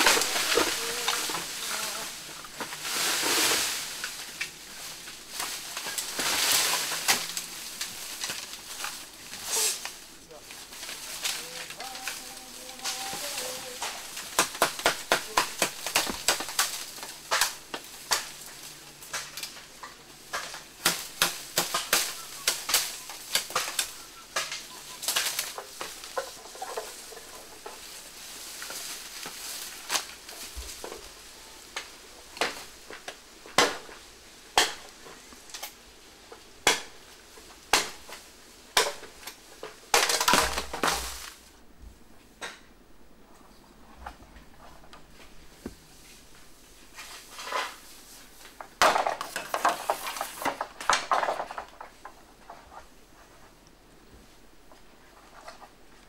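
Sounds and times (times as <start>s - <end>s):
machete cutting bamboo: 0.0s - 1.8s, 10.8s - 18.5s, 20.3s - 27.9s, 31.8s - 35.8s, 36.6s - 37.0s, 37.6s - 41.4s
dry bamboo litter crunching: 0.0s - 41.7s, 43.5s - 56.0s.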